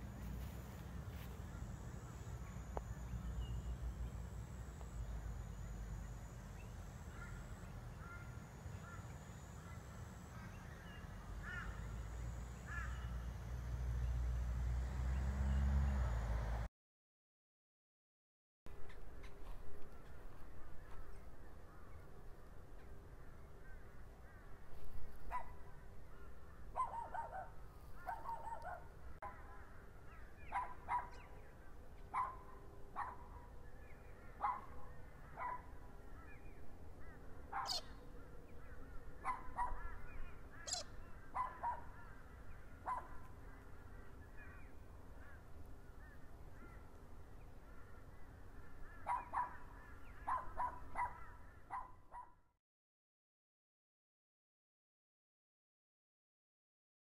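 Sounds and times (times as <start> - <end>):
low rumble of wind: 18.7 - 52.2
short animal calls: 40.6 - 40.9.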